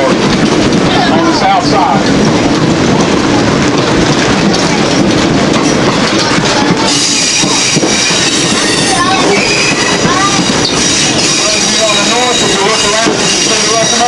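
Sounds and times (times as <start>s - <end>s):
rail car rumbling: 0.0s - 14.0s
wheel squeal: 4.5s - 14.0s.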